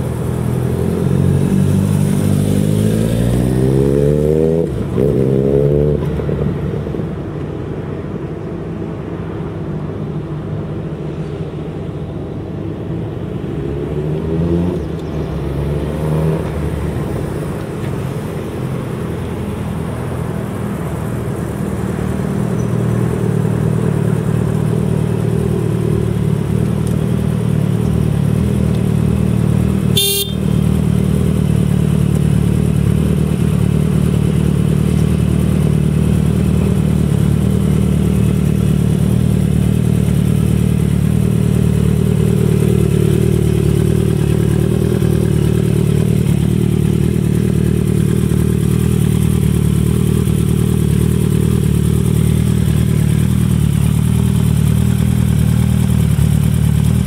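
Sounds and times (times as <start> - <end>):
motorcycle engine revving: 0.0 - 6.5, 23.1 - 57.0.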